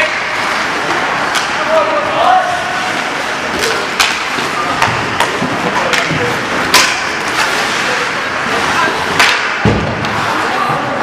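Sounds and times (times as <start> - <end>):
skates scraping on ice: 0.0 - 11.0
stick clacking on puck: 3.9 - 7.6, 9.2 - 10.2.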